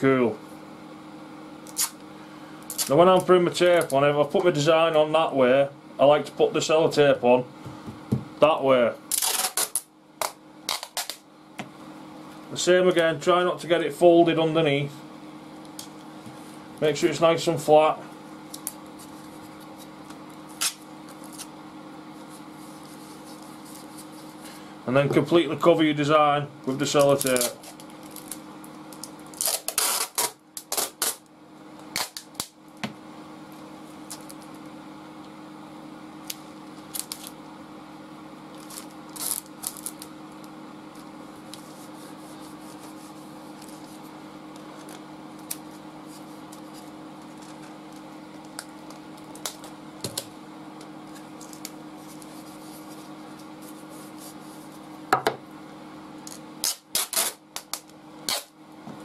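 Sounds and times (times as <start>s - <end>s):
steady low hum: 0.0s - 59.0s
packing tape ripping off roll: 1.6s - 2.0s, 2.7s - 3.0s, 9.1s - 11.2s, 20.5s - 21.5s, 27.0s - 31.3s, 31.9s - 32.6s, 36.2s - 37.4s, 38.5s - 40.1s, 56.3s - 58.5s
hands smoothing tape on paper: 22.2s - 24.5s, 41.0s - 44.1s, 51.1s - 54.8s.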